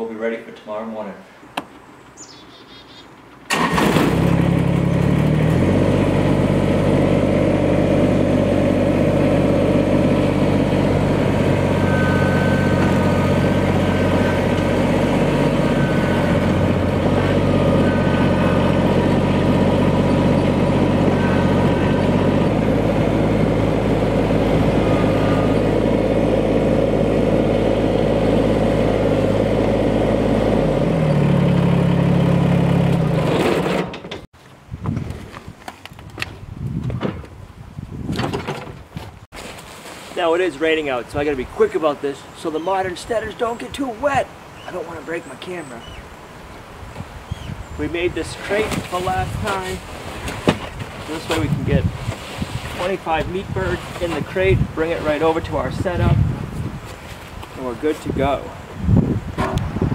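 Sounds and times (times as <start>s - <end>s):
tractor diesel engine running: 3.5s - 34.3s.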